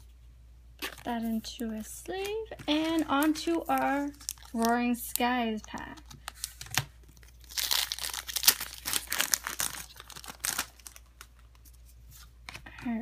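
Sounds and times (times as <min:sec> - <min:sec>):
foil wrapper crinkling and tearing: 0:02.4 - 0:11.7.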